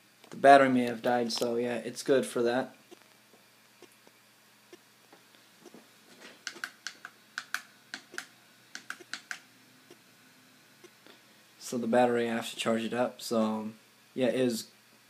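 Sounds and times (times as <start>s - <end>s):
computer keyboard key taps: 6.5s - 9.4s.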